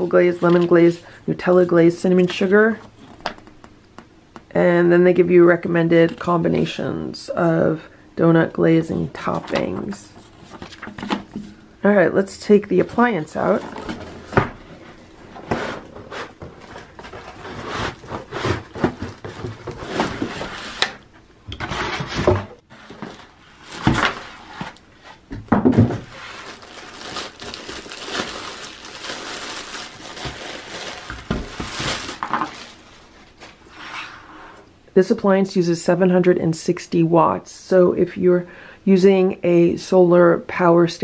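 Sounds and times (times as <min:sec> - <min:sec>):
cardboard packaging rustling: 0:09.2 - 0:11.6, 0:13.0 - 0:20.9, 0:21.6 - 0:34.0
plastic wrapping crinkling: 0:22.8 - 0:24.8, 0:25.9 - 0:33.7.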